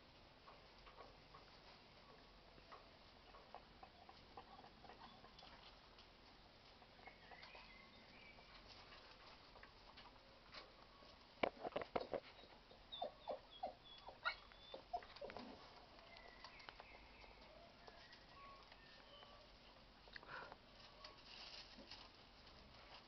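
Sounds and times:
puppies yelping: 12.9s - 15.3s.

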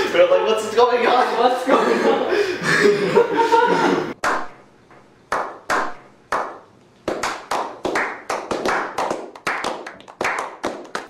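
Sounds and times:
group clapping: 4.1s - 4.6s, 5.3s - 11.0s.

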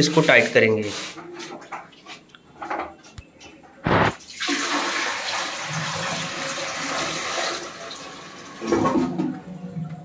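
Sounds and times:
water poured into toilet bowl: 4.2s - 9.1s.

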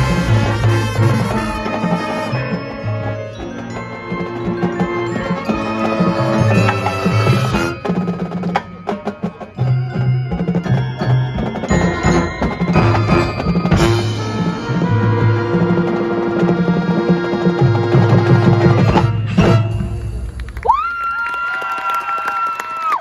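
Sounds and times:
ringing mallet percussion: 0.0s - 15.7s
marching band playing: 0.0s - 20.8s.

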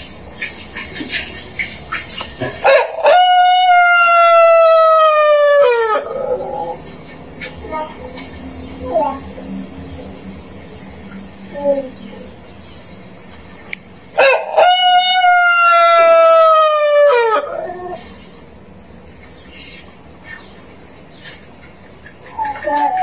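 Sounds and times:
rooster crowing: 2.6s - 6.8s, 14.2s - 18.0s.

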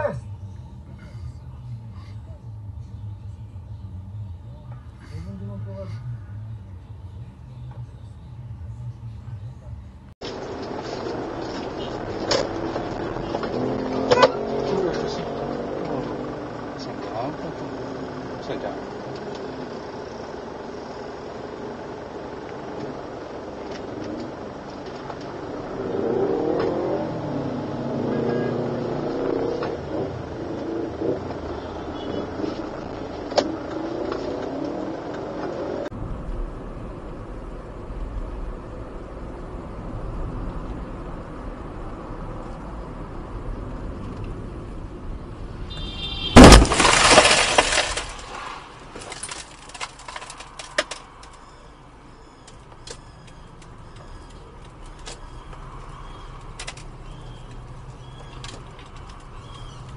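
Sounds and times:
road and engine noise: 0.0s - 59.9s
loud car crash: 45.8s - 50.8s.

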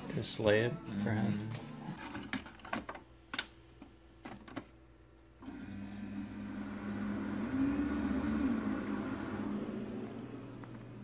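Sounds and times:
coffee maker pump humming: 5.4s - 11.0s.

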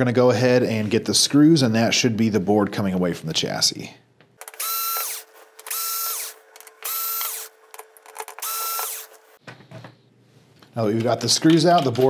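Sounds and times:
cordless drill motor whine: 4.6s - 7.6s, 8.4s - 9.2s.

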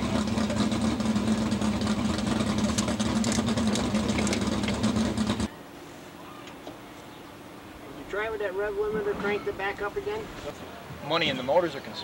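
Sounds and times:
truck engine idling: 0.0s - 5.5s.

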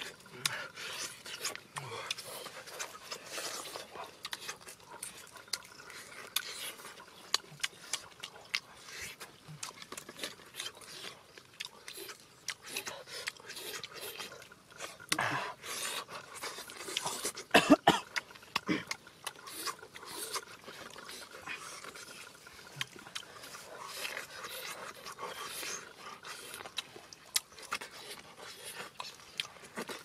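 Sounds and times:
wet chewing and lip-smacking: 0.0s - 30.0s
loud cough-like burst: 17.5s - 18.1s.

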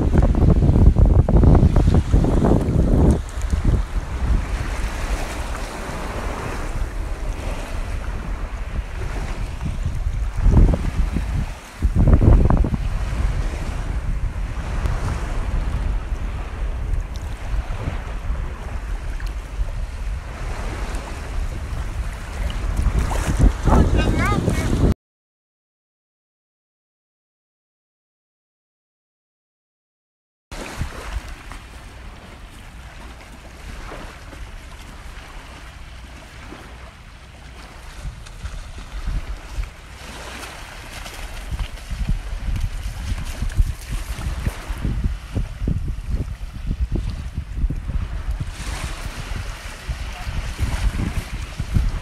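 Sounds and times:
wind noise on microphone: 0.0s - 25.0s, 30.5s - 52.0s
small sea waves washing: 1.5s - 24.9s, 30.5s - 52.0s
waves lapping on gravel shore: 30.6s - 45.7s, 46.4s - 52.0s.

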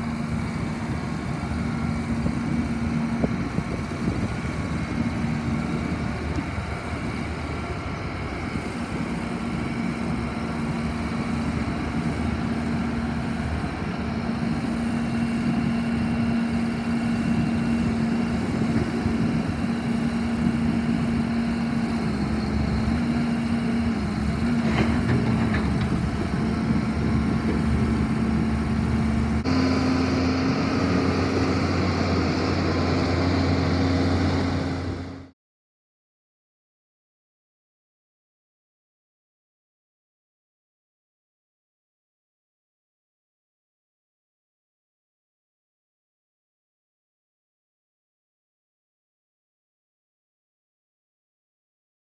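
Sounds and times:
diesel engine running: 0.0s - 35.3s.

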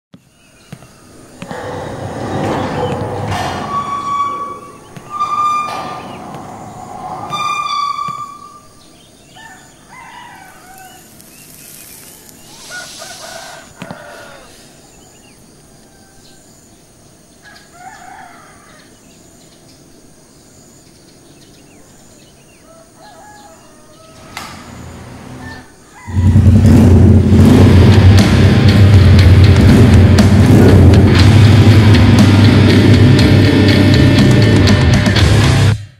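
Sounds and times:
rushing noise: 1.1s - 8.8s, 24.5s - 35.8s
rooster crowing: 1.4s - 11.2s, 12.4s - 14.9s, 17.4s - 19.0s, 22.6s - 26.7s.

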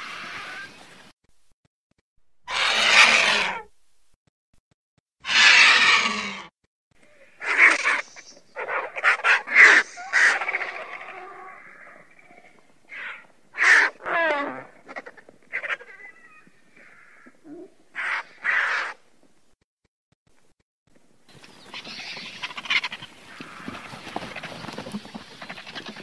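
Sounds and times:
vultures calling harshly: 0.0s - 0.9s, 2.4s - 3.7s, 5.2s - 6.5s, 7.1s - 19.0s, 21.3s - 26.0s.

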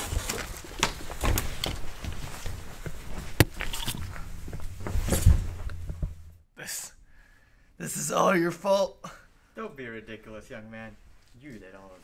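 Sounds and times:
clothing rustle: 0.0s - 6.4s, 10.7s - 12.0s
footsteps on hard floor: 0.8s - 6.4s
heavy thump: 4.5s - 6.4s.

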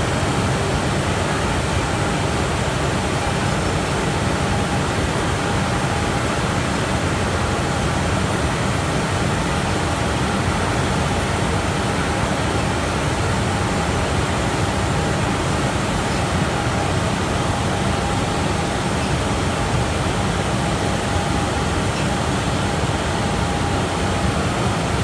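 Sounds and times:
veneer dryer fans and conveyor: 0.0s - 25.0s.

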